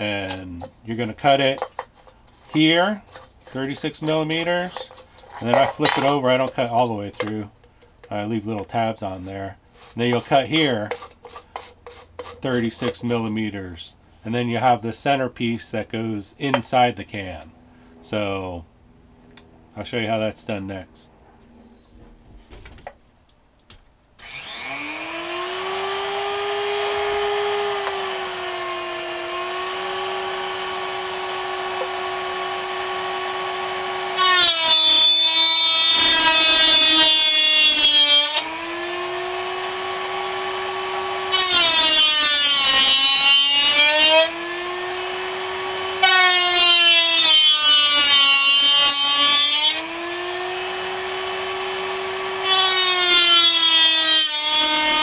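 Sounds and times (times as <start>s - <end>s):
rotary tool whining: 24.2s - 55.0s
cutting wheel screeching on metal can: 34.1s - 38.3s.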